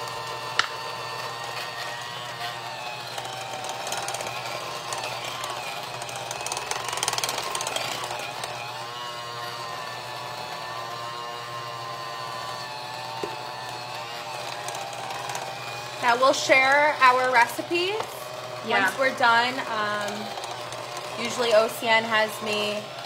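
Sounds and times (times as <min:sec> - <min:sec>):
hand mixer whirring: 0:00.0 - 0:23.0.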